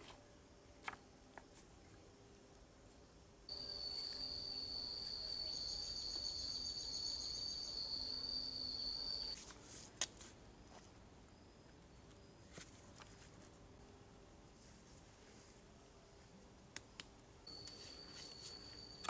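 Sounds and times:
insect calling high note: 3.5 - 9.4.

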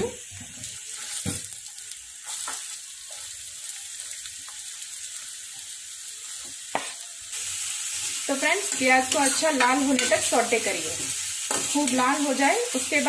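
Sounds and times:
onions sizzling in hot oil: 0.0 - 13.0
steel spoon clinking on pan: 9.1 - 10.3.

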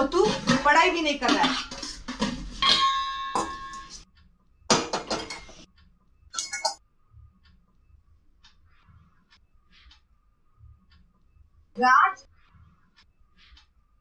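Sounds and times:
pots and utensils clattering: 0.0 - 4.0, 4.7 - 5.6, 6.4 - 6.8
metal vessel ringing: 2.6 - 4.0, 6.4 - 6.8.

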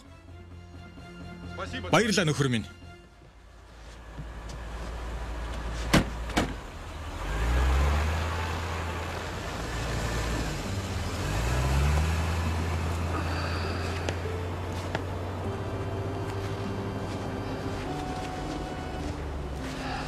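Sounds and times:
car doors slamming: 5.8 - 6.6
car engine revving: 6.6 - 20.0.

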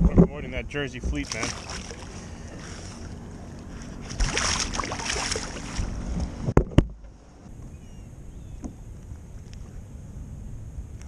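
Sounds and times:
water splashing: 1.0 - 6.0.

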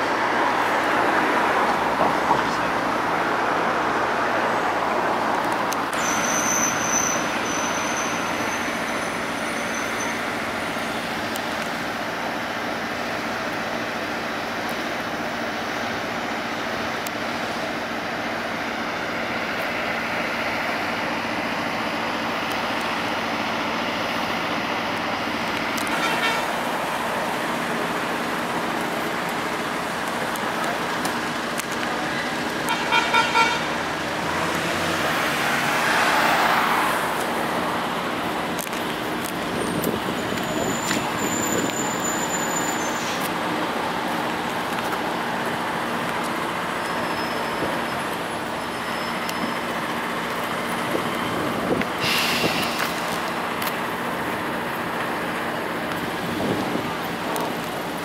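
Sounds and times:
traffic hum: 0.0 - 58.0
car horn honks: 25.9 - 26.6, 32.7 - 33.7
vehicle passing close: 33.7 - 41.7.

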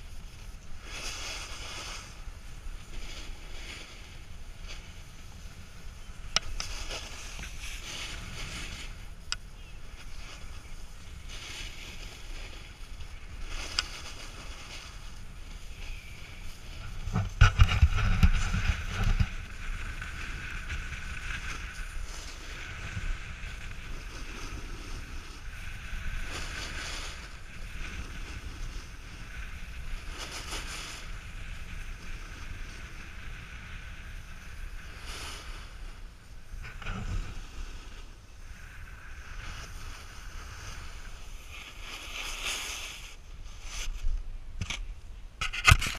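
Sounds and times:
snowboard sliding on snow: 0.0 - 44.2
wind buffeting microphone: 0.0 - 45.9.

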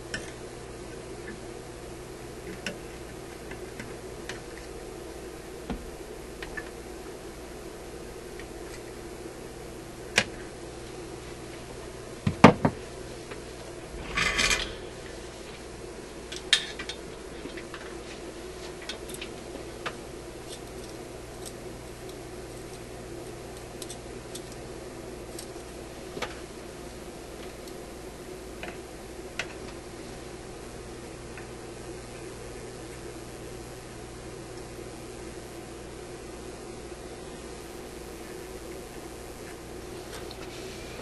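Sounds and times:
steady low hum: 0.0 - 41.0.

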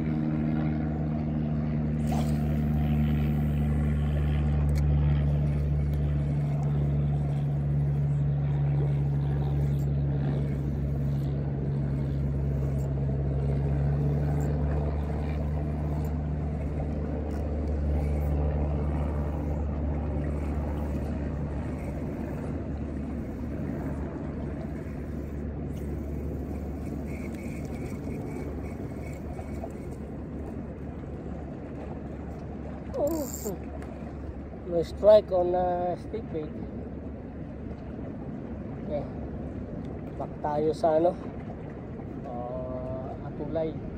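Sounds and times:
motorboat engine humming: 0.0 - 43.9.

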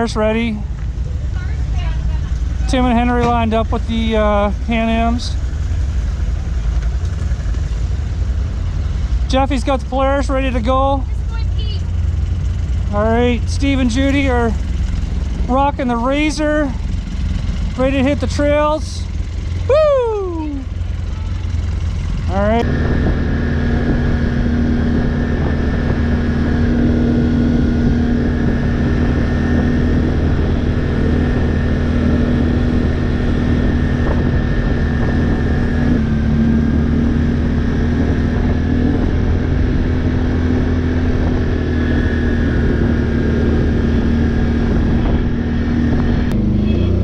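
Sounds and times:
quad engine running: 0.0 - 47.0
wind noise: 20.4 - 47.0.

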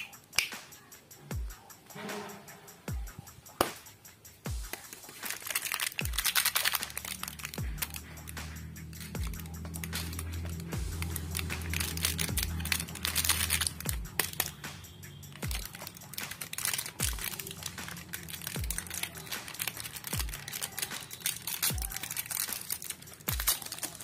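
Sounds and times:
background music with deep drum beat: 0.0 - 24.0
foil snack wrapper crinkling: 4.7 - 14.6, 15.2 - 24.0.

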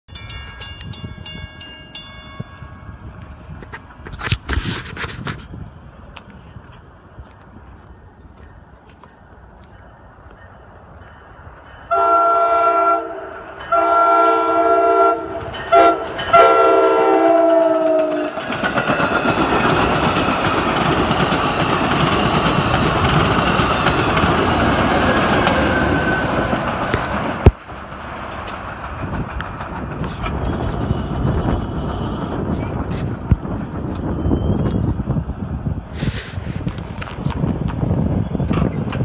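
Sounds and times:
train cars rumbling past: 0.1 - 39.0
train horn blasts: 11.9 - 18.4.

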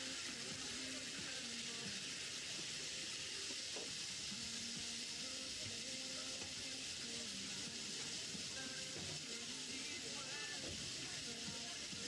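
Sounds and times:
meat sizzling on a griddle: 0.0 - 12.0.

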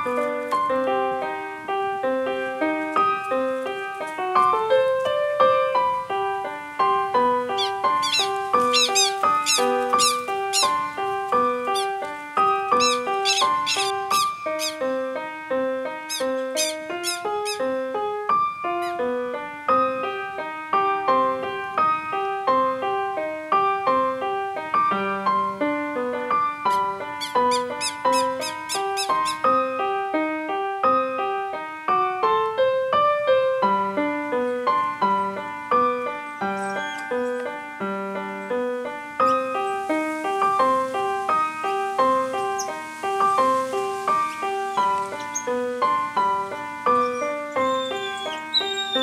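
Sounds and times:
keyboard melody: 0.0 - 49.0
piano music: 0.0 - 49.0
high falling chirps: 7.2 - 15.2, 16.0 - 17.9, 26.7 - 29.6, 35.9 - 37.6, 39.2 - 49.0.

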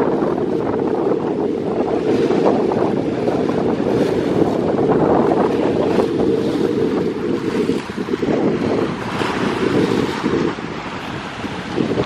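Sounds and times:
choppy sea water: 0.0 - 12.0
wind buffeting microphone: 0.0 - 12.0.

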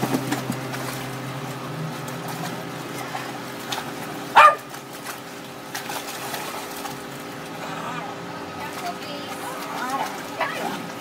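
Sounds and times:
dog barking: 4.4 - 4.7.

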